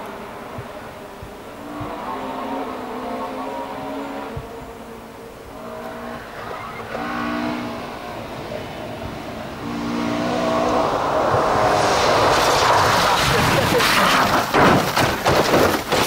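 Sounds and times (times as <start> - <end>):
rally car engine: 0.0 - 16.0
tyre noise: 5.5 - 16.0.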